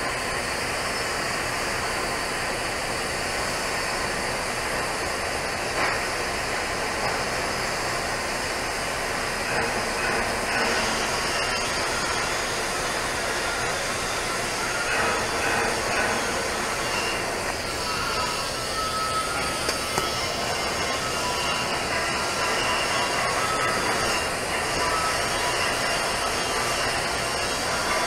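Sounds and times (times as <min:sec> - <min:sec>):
welding arc hissing: 0:00.1 - 0:28.0.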